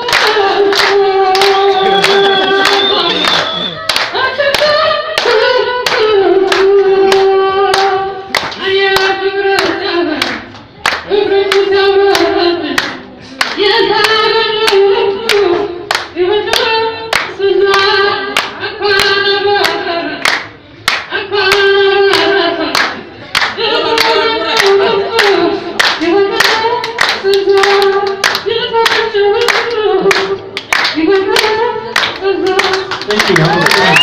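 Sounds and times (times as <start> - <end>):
people clapping along: 0.0 - 34.0
person singing unaccompanied: 0.0 - 34.0.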